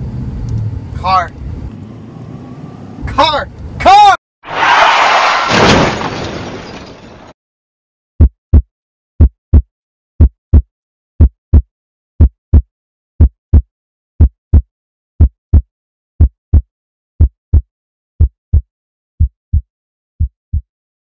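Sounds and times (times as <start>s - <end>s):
heartbeat thumps: 8.2s - 20.7s.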